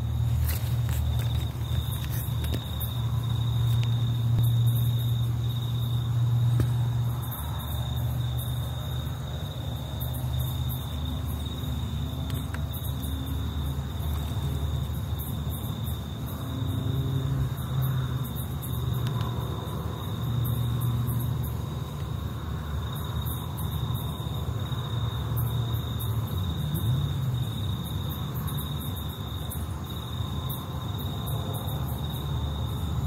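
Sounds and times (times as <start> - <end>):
crickets trilling: 0.0 - 33.0.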